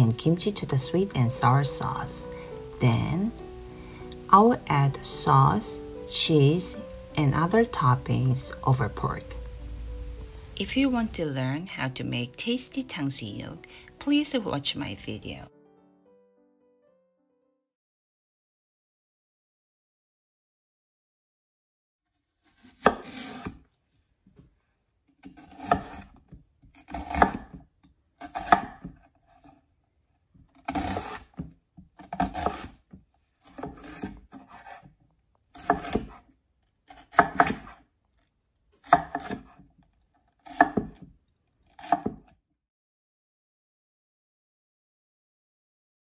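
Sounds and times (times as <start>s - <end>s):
knife cutting on cutting board: 22.4s - 23.6s, 25.2s - 27.6s, 28.2s - 29.6s, 30.5s - 34.9s, 35.5s - 36.3s, 36.9s - 37.8s, 38.8s - 39.7s, 40.4s - 42.3s.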